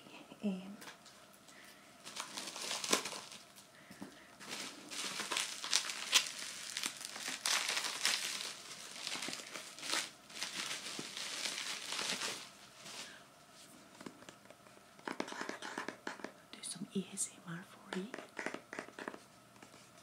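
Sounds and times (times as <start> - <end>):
packaging crinkling: 2.0 - 3.7, 4.4 - 13.2.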